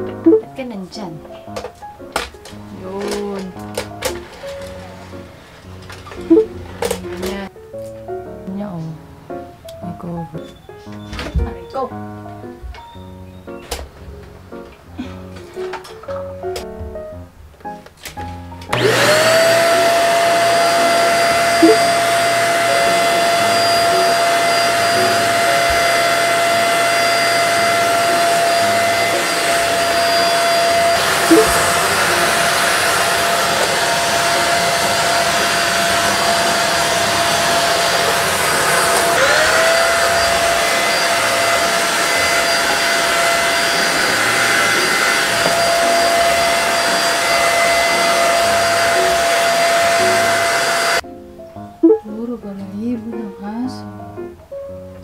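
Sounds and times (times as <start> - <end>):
vacuum cleaner motor whine: 2.5 - 7.4, 18.7 - 51.0.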